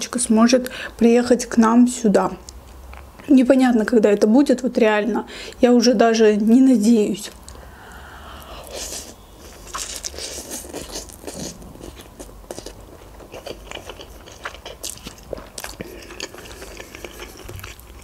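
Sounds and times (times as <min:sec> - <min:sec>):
chewing with wet mouth clicks: 0:09.7 - 0:18.0.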